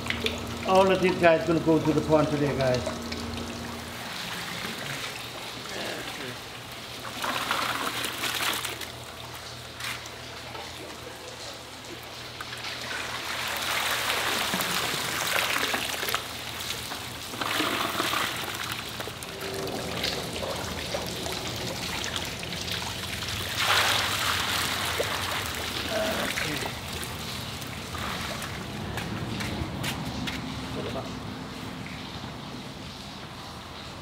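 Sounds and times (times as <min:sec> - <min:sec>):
steady low hum: 0:14.1 - 0:34.0
water splashing off a net: 0:23.4 - 0:28.7.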